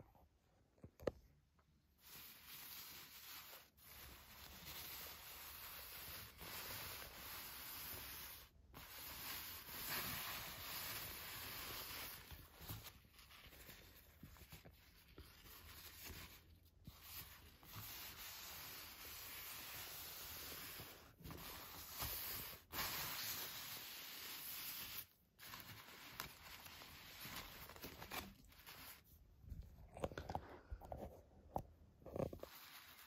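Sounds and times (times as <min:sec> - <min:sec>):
synthetic fabric rustling: 0:32.0 - 0:33.0.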